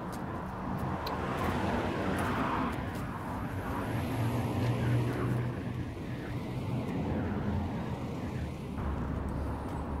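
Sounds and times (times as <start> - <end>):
vehicle engine humming: 0.0 - 10.0.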